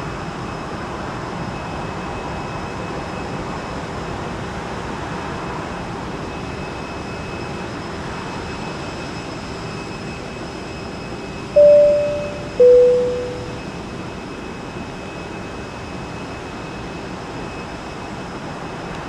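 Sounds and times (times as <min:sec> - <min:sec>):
two-note chime: 0:11.6 - 0:13.6.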